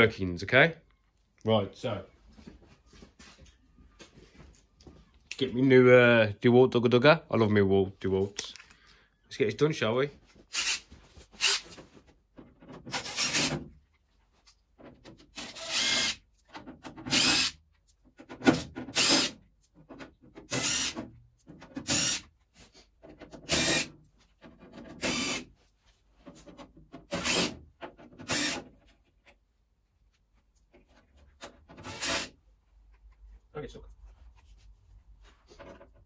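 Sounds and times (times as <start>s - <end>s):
cordless driver whirring: 15.4s - 16.2s, 20.5s - 21.0s, 25.0s - 25.4s, 28.2s - 28.6s, 31.8s - 32.3s.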